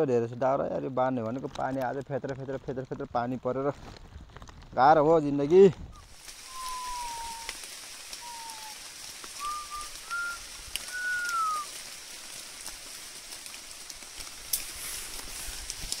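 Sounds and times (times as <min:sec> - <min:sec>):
light rain falling: 0:05.4 - 0:16.0
whistled notes: 0:06.0 - 0:08.8, 0:09.4 - 0:11.7.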